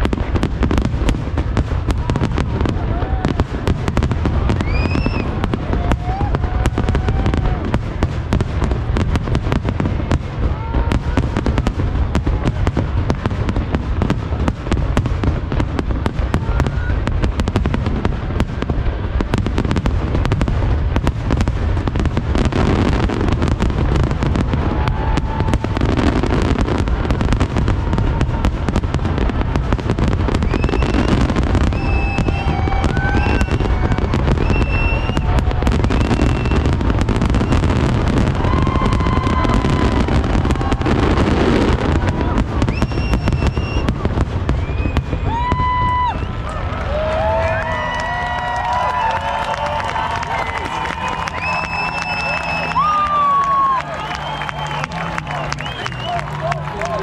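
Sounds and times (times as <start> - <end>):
rising firework whistles: 1.9 - 8.0, 22.4 - 56.3.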